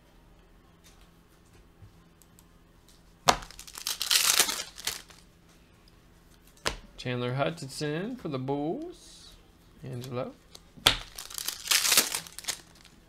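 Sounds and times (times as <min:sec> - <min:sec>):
foil wrappers crinkling: 0:03.4 - 0:05.2, 0:10.9 - 0:13.0.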